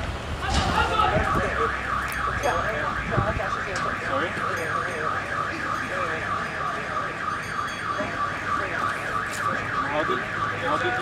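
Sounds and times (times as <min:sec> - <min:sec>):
warbling electronic alarm: 0:00.9 - 0:11.0.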